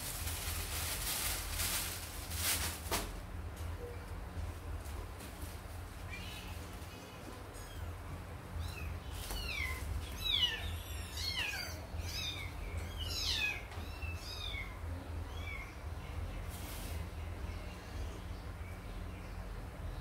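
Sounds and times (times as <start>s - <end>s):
kitten meowing: 8.6s - 15.7s.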